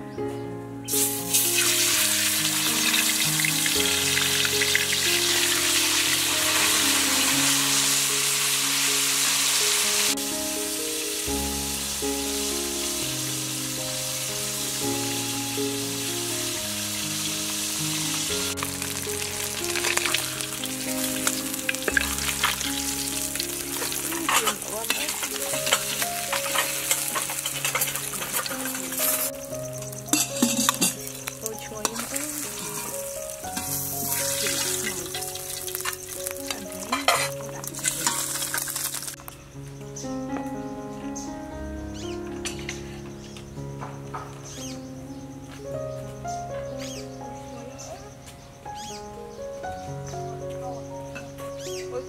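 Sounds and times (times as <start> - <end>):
fish sizzling in hot oil: 0.9 - 39.3
metal spatula scraping wok: 21.2 - 29.3, 30.1 - 32.9, 33.6 - 39.2.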